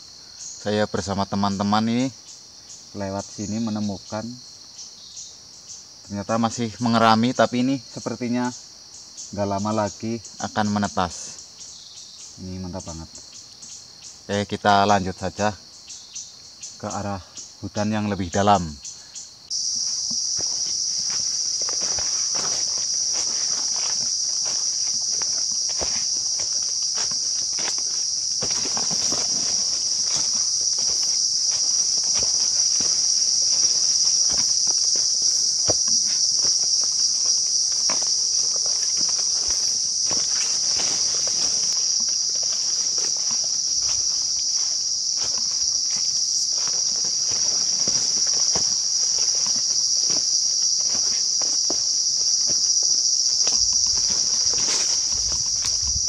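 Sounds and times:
forest insects droning: 0:00.0 - 0:56.0
brushing past undergrowth: 0:19.5 - 0:52.0, 0:52.6 - 0:56.0
footsteps crunching through dry leaves: 0:19.5 - 0:56.0.

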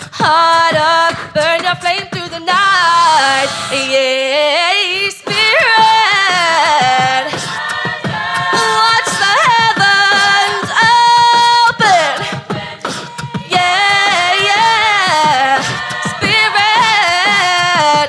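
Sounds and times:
choir singing in harmony: 0:06.3 - 0:11.4, 0:12.1 - 0:18.0.

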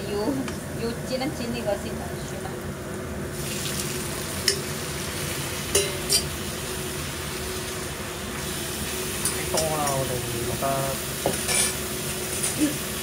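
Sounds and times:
garlic sizzling in hot oil: 0:02.6 - 0:13.0
steel bowl clinking on pan: 0:05.7 - 0:06.3.

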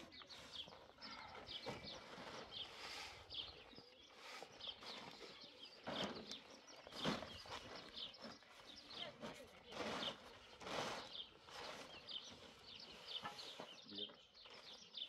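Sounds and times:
small birds chirping: 0:00.0 - 0:15.0
heavy sacks scraping: 0:01.6 - 0:03.2, 0:04.2 - 0:13.8.

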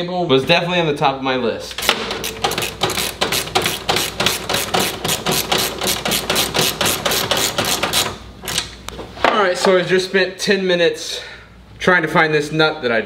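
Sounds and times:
ratchet wrench clicking: 0:01.8 - 0:08.7.

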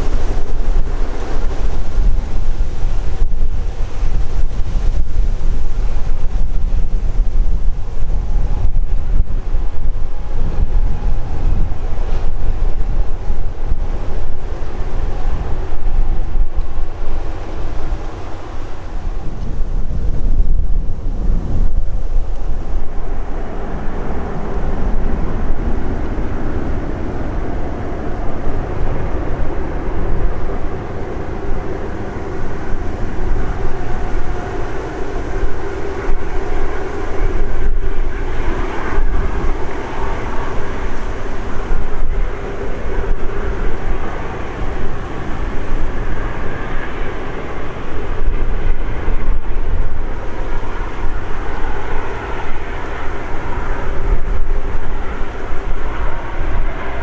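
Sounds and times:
wind on microphone: 0:00.0 - 0:57.0
jet engines whining: 0:20.9 - 0:57.0.

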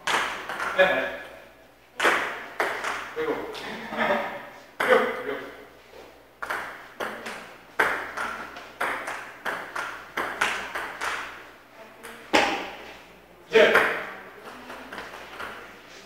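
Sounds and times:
ball bouncing on table: 0:00.0 - 0:00.8, 0:02.0 - 0:03.1, 0:06.4 - 0:11.4, 0:12.0 - 0:12.8, 0:13.7 - 0:15.6
table tennis ball hitting paddles: 0:00.0 - 0:01.3, 0:02.0 - 0:03.2, 0:04.8 - 0:05.2, 0:06.4 - 0:12.9, 0:13.6 - 0:15.7.

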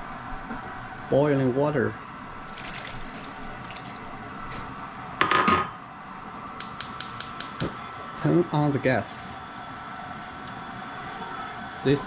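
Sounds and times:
water pouring into pan: 0:02.4 - 0:04.3
gas burner igniter clicks: 0:06.6 - 0:07.8.

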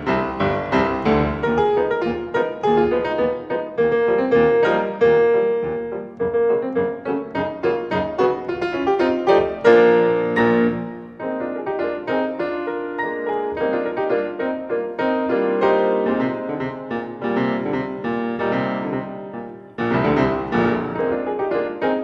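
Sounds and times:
solo piano music: 0:00.0 - 0:22.0.

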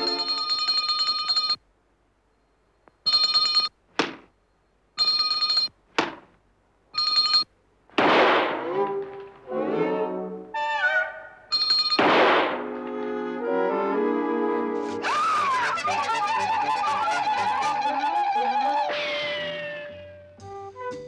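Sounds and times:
loud cartoon whack: 0:08.0 - 0:08.7, 0:12.0 - 0:12.6.

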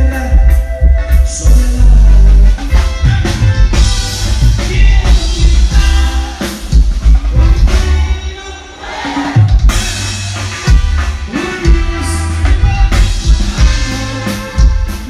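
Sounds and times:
person singing: 0:00.0 - 0:03.8, 0:04.4 - 0:06.7
drum kit: 0:00.0 - 0:15.0
live band playing: 0:00.0 - 0:15.0.

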